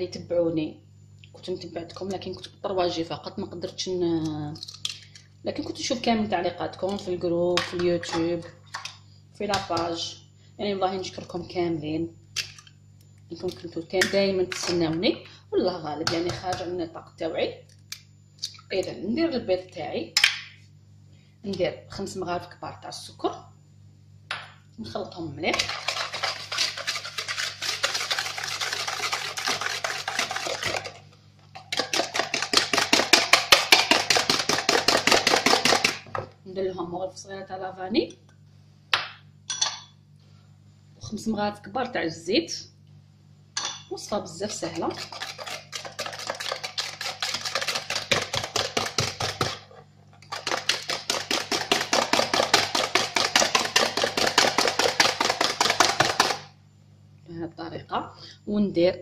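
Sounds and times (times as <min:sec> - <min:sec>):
whisk clattering against a bowl: 0:25.5 - 0:31.0, 0:31.7 - 0:36.0, 0:44.5 - 0:56.4.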